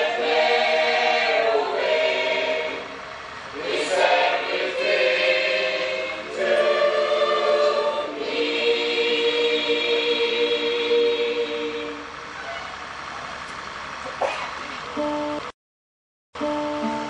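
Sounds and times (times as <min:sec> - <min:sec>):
women's choir singing a hymn: 0:00.0 - 0:12.2.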